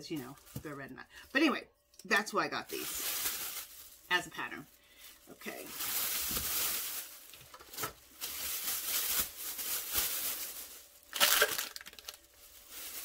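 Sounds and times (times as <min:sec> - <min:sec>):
plastic packaging crinkling: 0:02.6 - 0:13.0.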